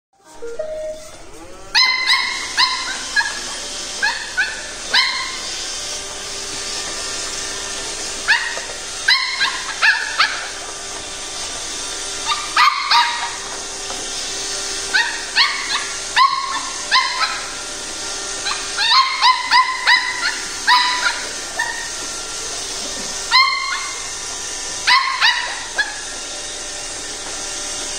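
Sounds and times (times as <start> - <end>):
robot vacuum humming: 0.3 - 27.9
puppy yapping: 1.7 - 5.5, 8.2 - 10.7, 12.2 - 13.6, 14.9 - 17.7, 18.3 - 22.1, 22.9 - 24.1, 24.8 - 26.2.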